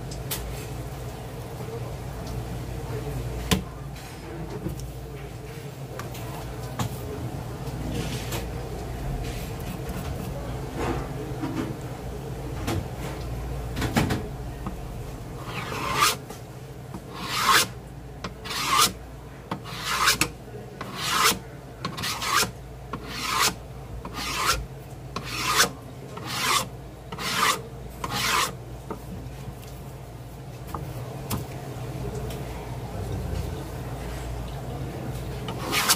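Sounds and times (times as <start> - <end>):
knife scraping cutting board: 15.4 - 16.2, 17.0 - 17.7, 18.3 - 24.6, 25.2 - 28.6, 35.4 - 35.9.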